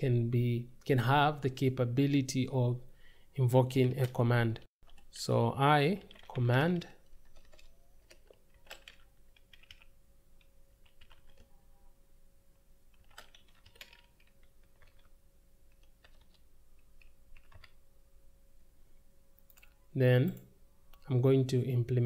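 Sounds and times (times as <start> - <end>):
faint steady hum: 0.0 - 22.0
keyboard typing: 5.8 - 11.8, 12.9 - 17.8, 19.4 - 21.1.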